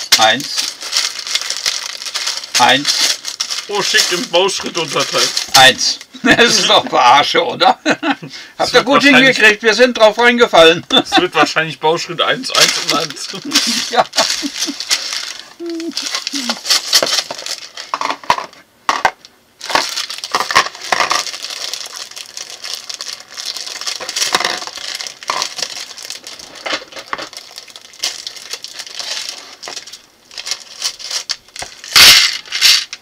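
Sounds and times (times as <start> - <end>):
plastic bags crinkling: 0.0 - 7.1, 12.2 - 18.6, 19.6 - 33.0
plastic bricks clicking and rattling: 12.6 - 22.0, 23.6 - 25.9.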